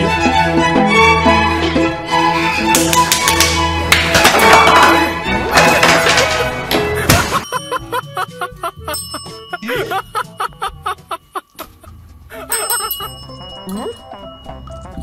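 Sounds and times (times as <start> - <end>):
light bell-like plinking notes: 7.2 - 15.0.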